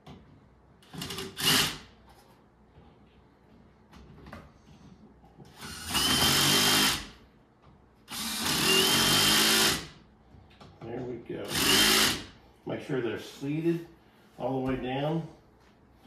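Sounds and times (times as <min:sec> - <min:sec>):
cordless drill driving screws: 0:00.8 - 0:01.8, 0:05.5 - 0:07.1, 0:08.1 - 0:09.9, 0:11.5 - 0:12.3.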